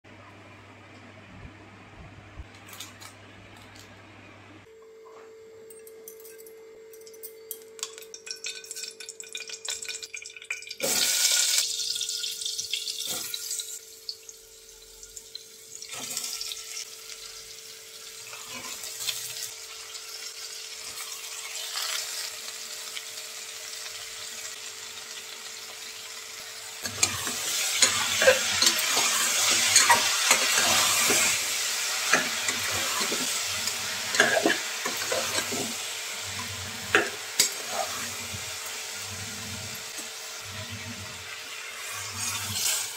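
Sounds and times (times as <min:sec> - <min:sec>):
ladle scraping a metal pot: 0:26.8 - 0:31.4, 0:32.1 - 0:38.4.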